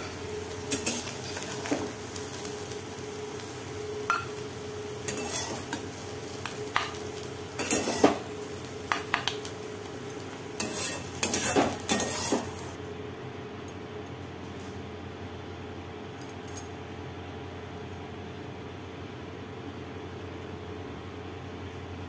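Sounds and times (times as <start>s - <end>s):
light sizzle from hot pan: 0.0s - 12.8s
spatula scraping metal pan: 5.1s - 5.8s, 7.6s - 8.2s, 10.6s - 12.6s.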